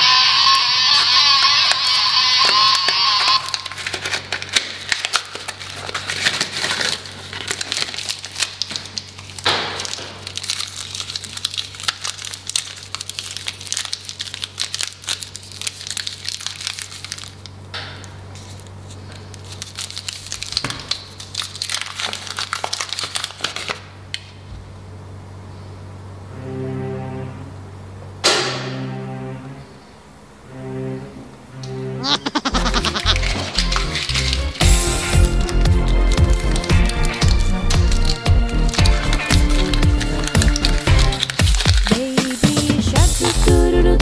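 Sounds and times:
wrappers crinkling: 0:02.5 - 0:24.4, 0:32.0 - 0:44.0
low steady hum: 0:23.9 - 0:41.9, 0:42.7 - 0:44.0.

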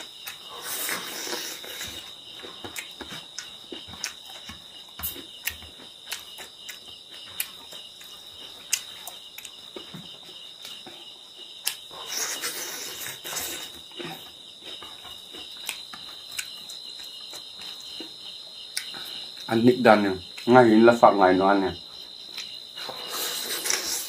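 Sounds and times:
insect chirring: 0:00.0 - 0:24.0
lip smacks and chewing: 0:00.2 - 0:09.9, 0:11.6 - 0:18.0.

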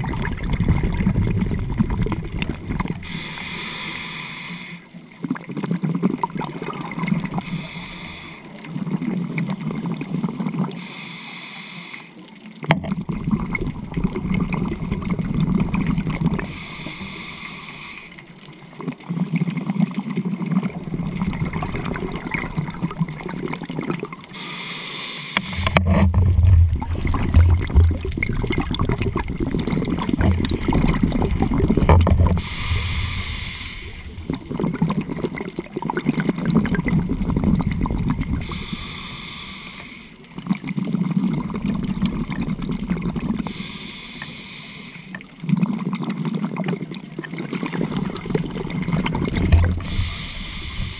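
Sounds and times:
exhaled bubbles rumbling: 0:00.0 - 0:03.7, 0:05.0 - 0:10.8, 0:12.5 - 0:17.0, 0:18.2 - 0:24.4, 0:25.4 - 0:39.4, 0:40.1 - 0:43.8, 0:45.1 - 0:50.9
scuba regulator hissing inhalations: 0:03.0 - 0:04.9, 0:07.4 - 0:08.6, 0:10.8 - 0:12.2, 0:16.4 - 0:18.2, 0:24.3 - 0:25.8, 0:32.3 - 0:34.2, 0:38.4 - 0:40.3, 0:43.4 - 0:45.3, 0:49.7 - 0:50.9.

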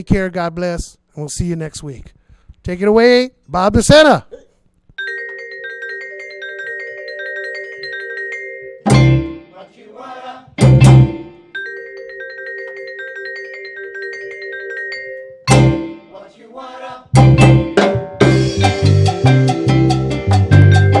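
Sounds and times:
latin jazz band playing: 0:05.1 - 0:09.6, 0:10.6 - 0:16.2, 0:17.1 - 0:21.0
loud full-band accents: 0:08.8 - 0:09.4, 0:10.5 - 0:11.4, 0:17.1 - 0:21.0.

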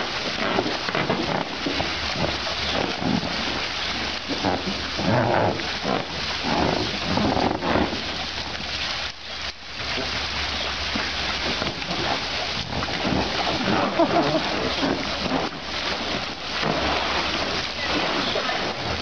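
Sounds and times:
elephants splashing in water: 0:00.0 - 0:19.0
spraying water hiss: 0:00.0 - 0:19.0.

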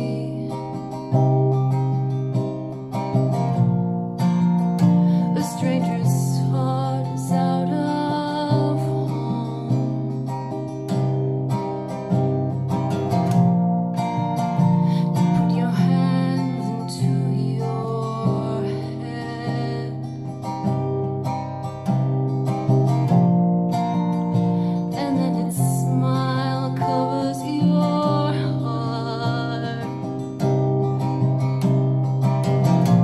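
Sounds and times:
woman singing softly: 0:00.0 - 0:00.9, 0:05.2 - 0:10.1, 0:15.0 - 0:20.1, 0:24.9 - 0:30.1
acoustic guitar strumming: 0:00.0 - 0:33.0.

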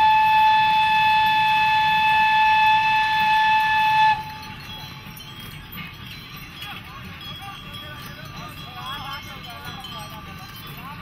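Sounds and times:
steam locomotive whistle: 0:00.0 - 0:04.6.

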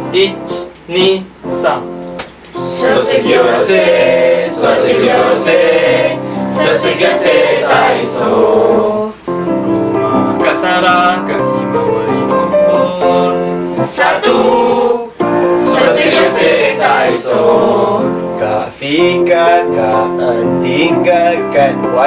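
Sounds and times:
electric keyboard: 0:00.0 - 0:22.0
group singing in unison: 0:02.6 - 0:09.3, 0:12.7 - 0:22.0.

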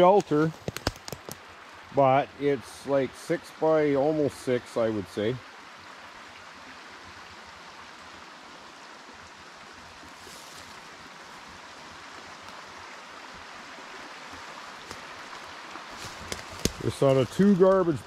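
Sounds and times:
creek water rushing: 0:00.0 - 0:18.0.

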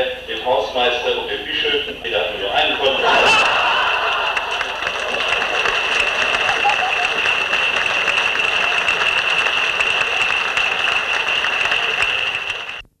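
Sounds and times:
audience applauding: 0:02.6 - 0:12.8.

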